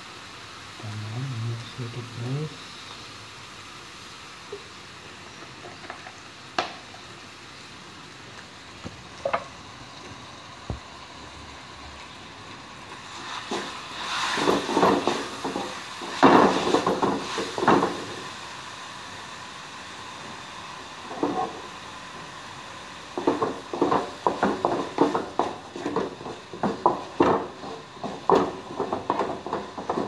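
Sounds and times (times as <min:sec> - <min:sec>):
paste sizzling in oil: 0:12.9 - 0:30.0.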